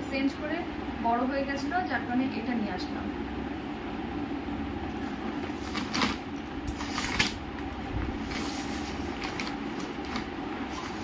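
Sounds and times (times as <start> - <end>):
shopping bags rustling: 8.1 - 11.0.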